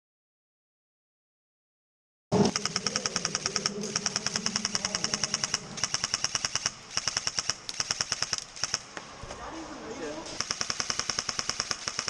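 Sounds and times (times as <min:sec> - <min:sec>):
airsoft gun firing bursts: 0:02.5 - 0:08.8, 0:10.3 - 0:12.0.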